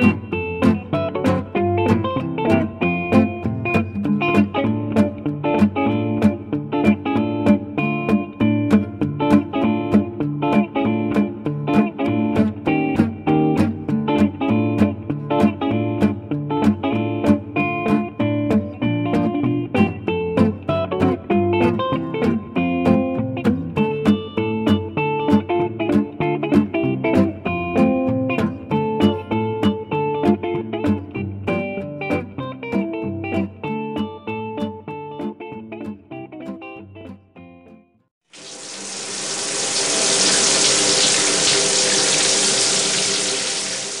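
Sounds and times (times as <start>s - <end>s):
guitar music with steady beat: 0.0s - 44.0s
tap water running into sink: 38.3s - 44.0s.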